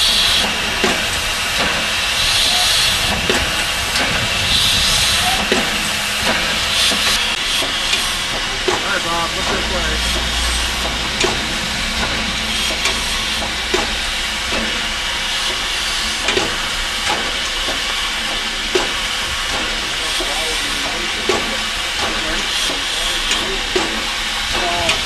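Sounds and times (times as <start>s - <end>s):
steam hissing: 0.0s - 25.0s.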